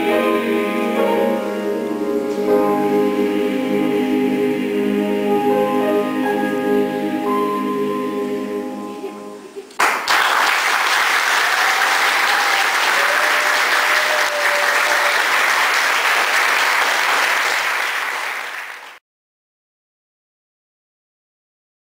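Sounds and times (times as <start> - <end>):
choir holding a chord: 0.0 - 9.6
audience applauding: 9.8 - 19.0.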